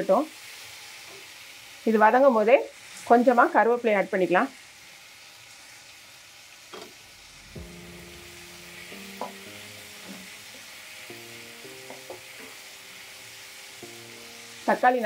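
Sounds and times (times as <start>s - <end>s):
vegetables sizzling in oil: 0.0s - 15.0s
soft background music: 7.2s - 15.0s
wooden spatula knocking on pan: 9.1s - 9.4s, 11.8s - 12.6s.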